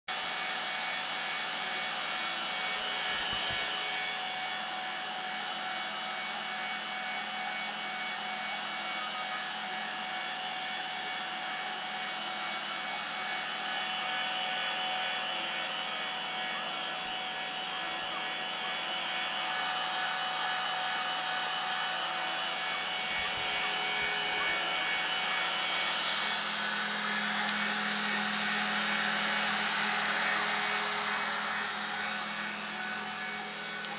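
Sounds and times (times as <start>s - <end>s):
router spindle whine: 0.1s - 33.9s
bit cutting foam hiss: 12.4s - 33.9s.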